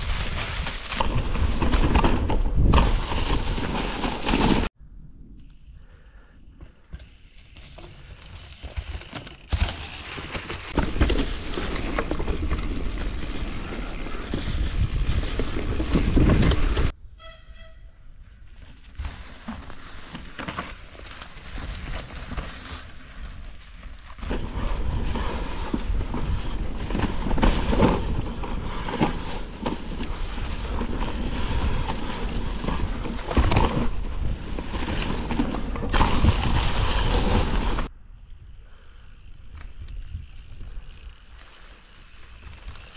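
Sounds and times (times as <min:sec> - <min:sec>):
bike tyres rumbling over stones: 0:00.0 - 0:04.7, 0:06.6 - 0:17.0, 0:18.6 - 0:37.9, 0:38.7 - 0:42.9
bike frame and chain clattering: 0:08.6 - 0:16.9, 0:39.1 - 0:42.9.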